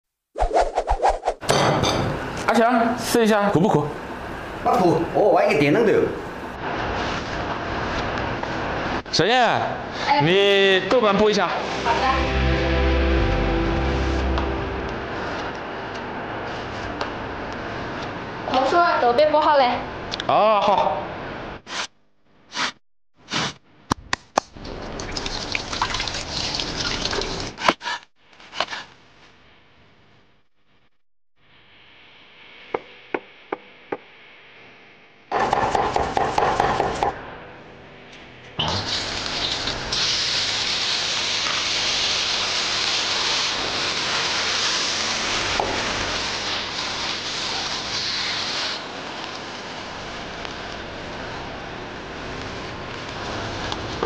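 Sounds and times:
water splashing into stone sink: 24.6 - 27.6
hot oil sizzling in a wok: 38.7 - 50.6.

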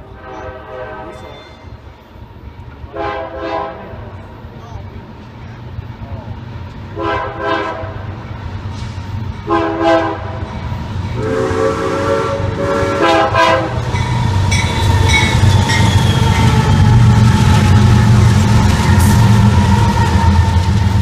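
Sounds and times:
locomotive horn blasts: 0.0 - 1.3, 2.9 - 4.0, 7.0 - 8.1, 9.4 - 10.5, 11.2 - 13.9
diesel locomotives and wheels rumbling: 0.0 - 21.0.

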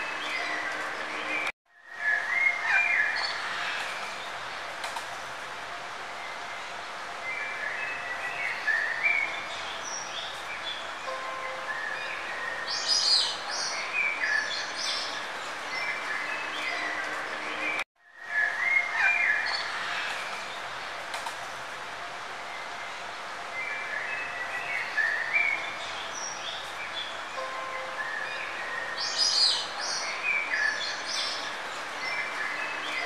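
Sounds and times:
steady background hiss: 0.0 - 33.0
birds chirping: 22.5 - 33.0.

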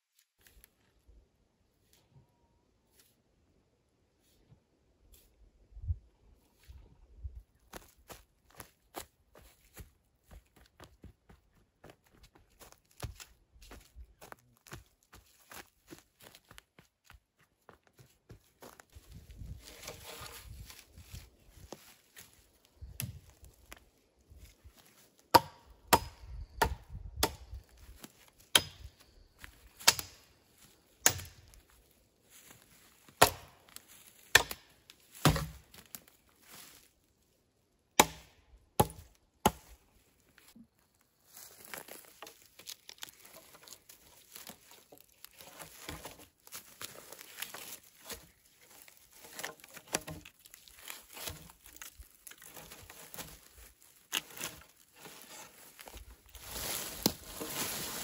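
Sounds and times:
hatchet chopping log: 25.3 - 27.5, 28.5 - 28.9, 29.8 - 30.2, 31.0 - 31.4, 33.2 - 33.6, 34.3 - 35.7, 38.0 - 39.7.

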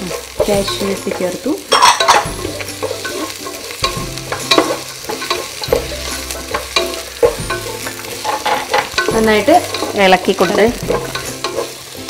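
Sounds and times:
spatula scraping and tapping a pan: 0.0 - 12.0
vegetables sizzling in oil: 0.0 - 12.0.

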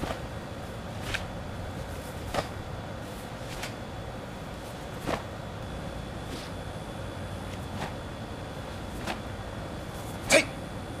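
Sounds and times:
low outdoor background: 0.0 - 11.0
uniform sleeves swishing: 0.9 - 3.8, 4.5 - 5.4.

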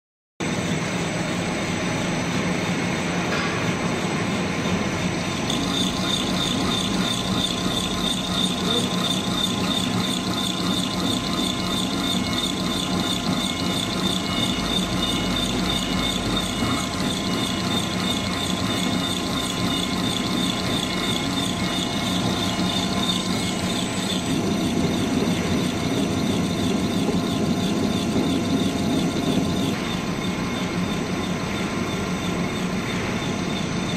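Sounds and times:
machinery drone: 3.0 - 33.9
high rapid pulsing: 5.4 - 31.6.

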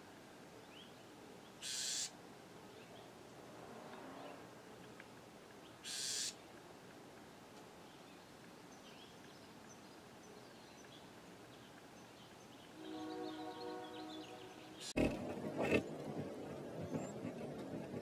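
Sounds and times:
wren harsh buzz call: 1.6 - 2.1, 5.8 - 6.4.

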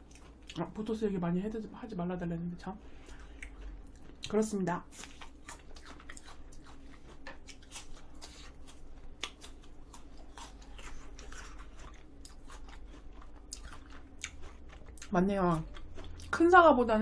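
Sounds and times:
apple crunching: 3.1 - 16.4.

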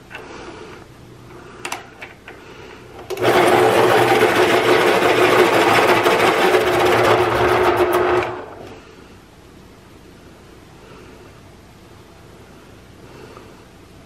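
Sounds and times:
electric pencil sharpener whirring: 3.1 - 8.6.

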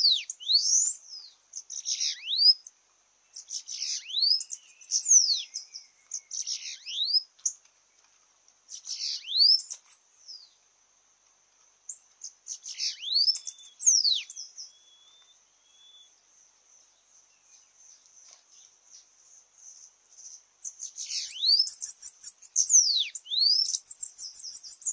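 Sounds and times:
birds singing buzzy notes and whistles: 0.0 - 2.7, 3.3 - 7.6, 8.7 - 10.6, 11.9 - 24.9.

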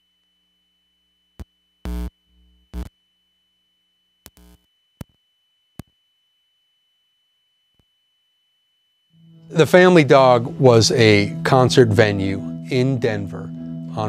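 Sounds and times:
amplifier hum: 0.0 - 14.0
electric guitar stabs: 9.2 - 14.0.

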